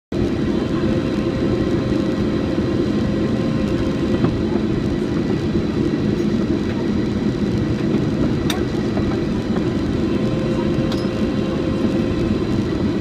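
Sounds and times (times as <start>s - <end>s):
jet engines and airflow rushing: 0.1s - 13.0s
faint steady whine: 0.2s - 13.0s.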